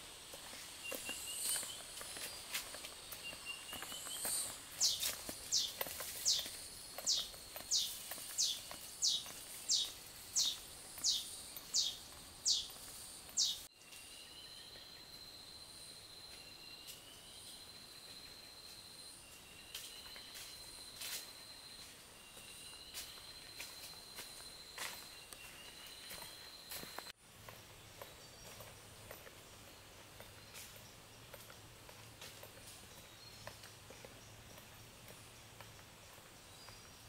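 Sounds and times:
footsteps crunching on dry leaves: 0.0s - 12.1s, 19.8s - 27.1s
high insect trill: 0.0s - 27.1s.

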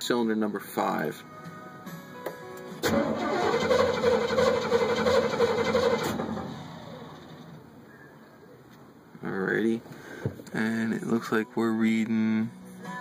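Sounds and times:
starter cranking engine: 2.8s - 7.6s.

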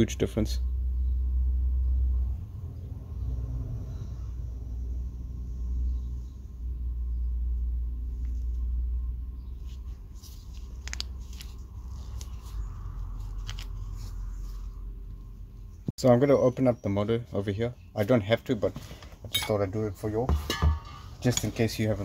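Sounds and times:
steady low rumble: 0.1s - 15.9s.

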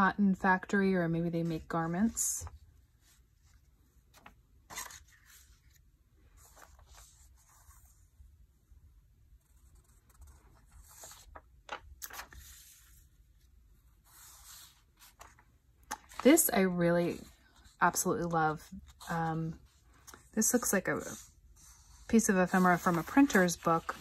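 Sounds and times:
paper sheets rustling: 4.0s - 7.8s, 10.0s - 13.1s, 14.0s - 16.5s, 17.1s - 24.0s.

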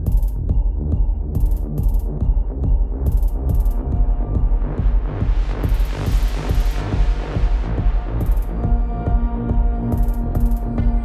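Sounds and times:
electronic music with pulsing beat: 0.0s - 11.0s.

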